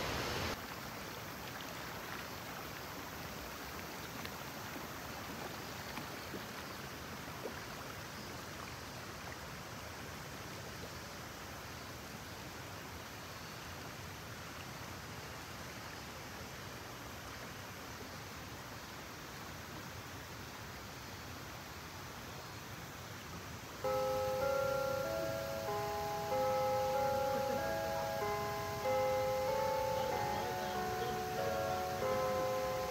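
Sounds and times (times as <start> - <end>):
river water rushing over rocks: 23.8 - 32.9.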